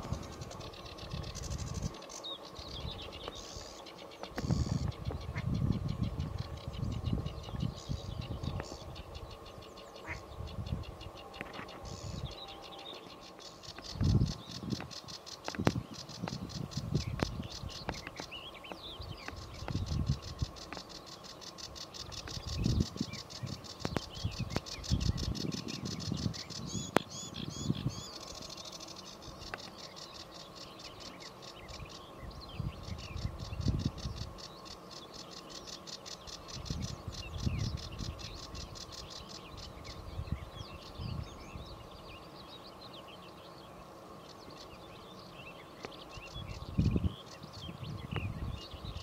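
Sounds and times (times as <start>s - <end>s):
wind rumble on microphone: 0.0s - 2.0s, 4.3s - 12.5s, 13.8s - 18.2s, 18.8s - 20.7s, 22.1s - 28.2s, 31.7s - 34.3s, 36.5s - 38.8s, 39.5s - 41.8s, 46.2s - 49.0s
sedge warbler singing: 0.0s - 49.0s.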